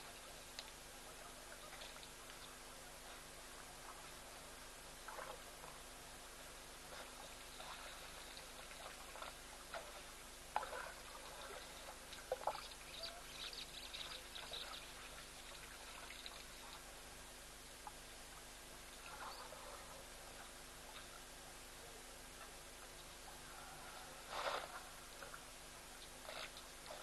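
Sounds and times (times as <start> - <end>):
water splashing from elephant trunks: 6.9 - 12.7, 24.2 - 25.4, 26.2 - 27.0.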